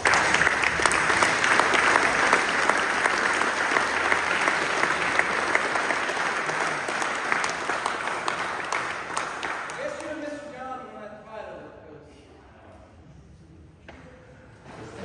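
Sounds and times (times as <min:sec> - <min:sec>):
crowd applauding: 0:00.0 - 0:10.5.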